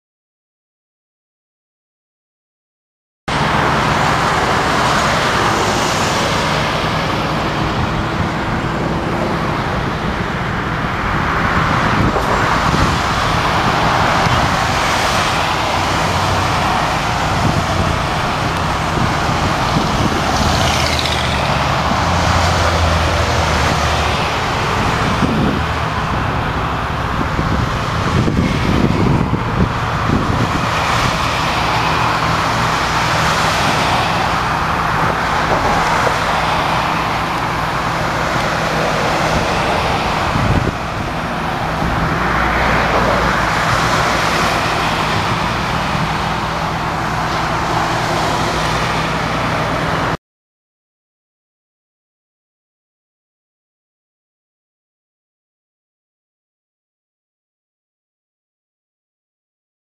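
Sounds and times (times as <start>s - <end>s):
vehicles passing at speed: 3.3s - 50.2s.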